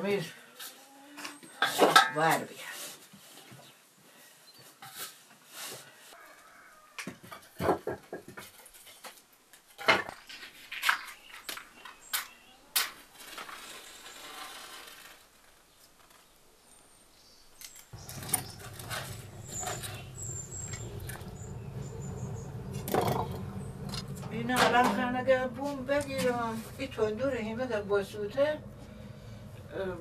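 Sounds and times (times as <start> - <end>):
fire burning and crackling: 17.9 - 30.0
firewood sticks knocking: 22.7 - 26.6.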